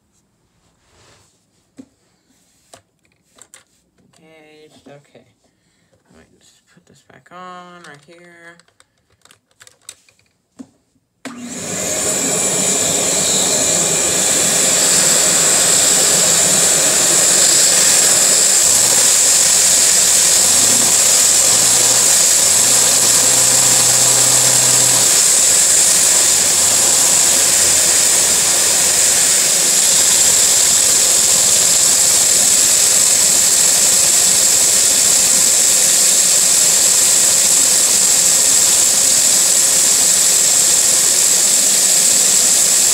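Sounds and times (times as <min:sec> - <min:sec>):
vacuum cleaner hissing: 0:11.3 - 0:42.9.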